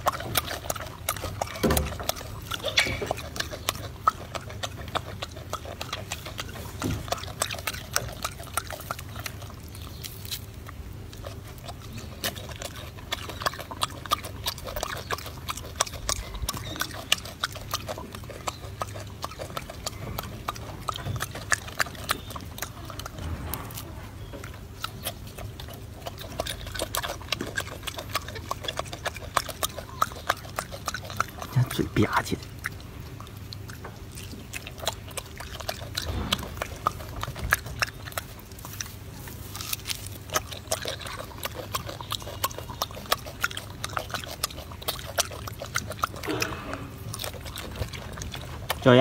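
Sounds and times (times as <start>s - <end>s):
monkey chewing with wet smacking: 0.0s - 49.0s.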